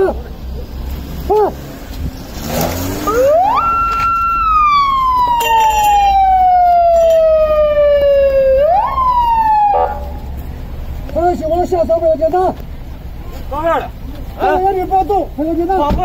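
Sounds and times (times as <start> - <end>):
police siren wailing: 3.0 - 10.3.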